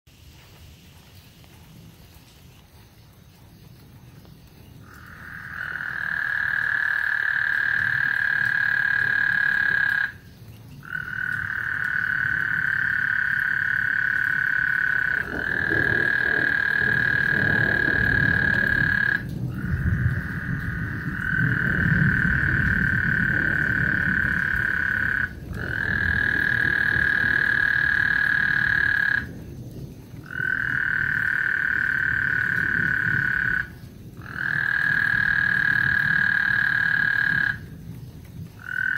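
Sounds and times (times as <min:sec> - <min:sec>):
frogs trilling: 0:02.6 - 0:38.9.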